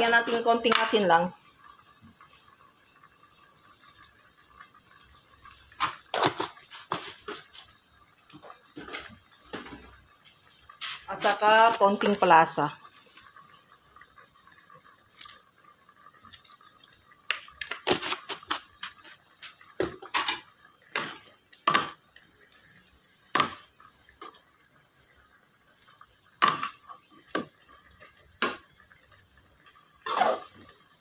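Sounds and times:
sauce simmering: 0.0s - 31.0s
metal spatula scraping a wok: 30.0s - 30.6s.

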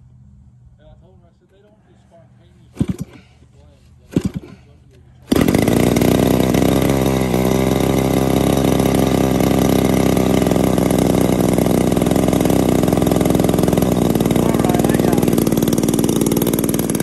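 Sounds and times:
model airplane engine running: 2.7s - 3.2s, 4.0s - 4.7s, 5.3s - 17.0s.

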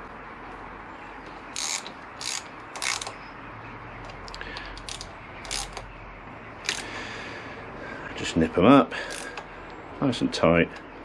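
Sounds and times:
hand ratchet clicking: 1.6s - 3.2s, 4.7s - 5.9s, 6.6s - 6.8s, 9.1s - 9.5s.

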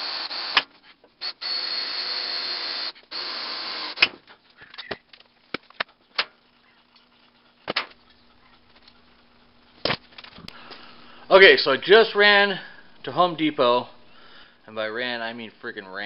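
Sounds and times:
cordless drill running: 0.0s - 0.6s, 1.2s - 4.0s.

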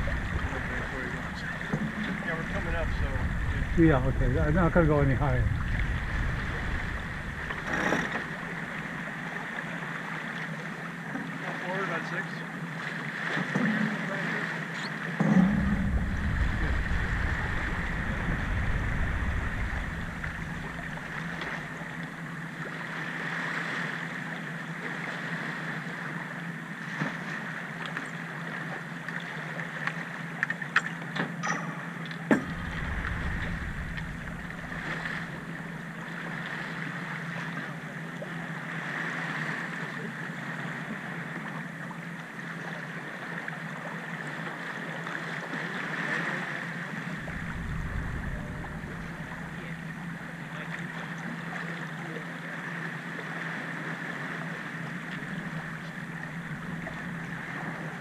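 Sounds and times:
short low rumbles: 0.0s - 8.9s, 15.2s - 21.8s, 31.9s - 35.8s, 47.1s - 50.7s
water rushing along hull: 0.0s - 58.0s
wind: 0.0s - 58.0s.

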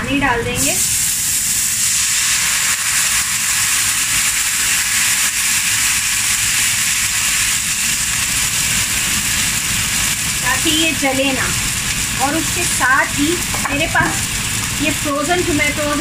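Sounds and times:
water sizzling in hot pan: 0.6s - 16.0s.

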